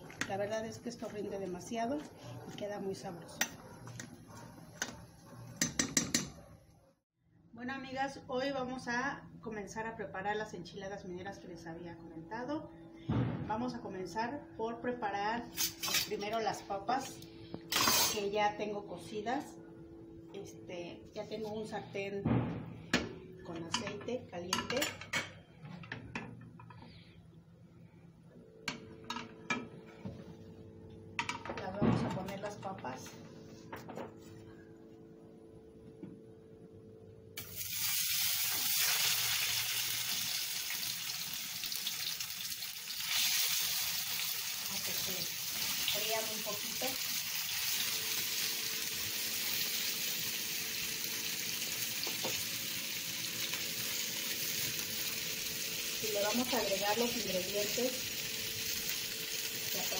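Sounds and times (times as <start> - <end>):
potatoes sizzling in oil: 37.4 - 59.9.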